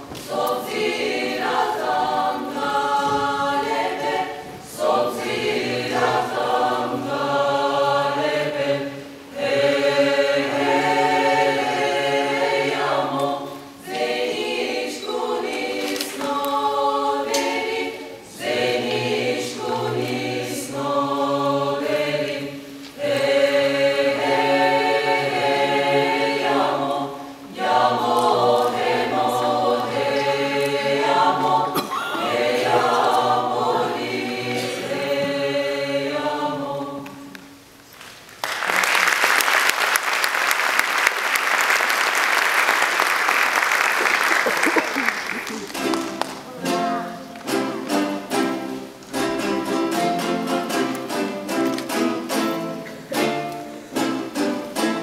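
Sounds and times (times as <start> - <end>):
choir singing a cappella: 0.0 - 37.7, 46.5 - 55.0.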